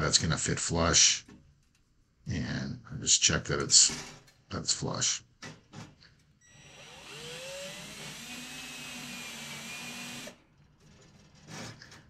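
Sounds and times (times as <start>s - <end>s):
cordless drill whining: 6.5s - 10.4s.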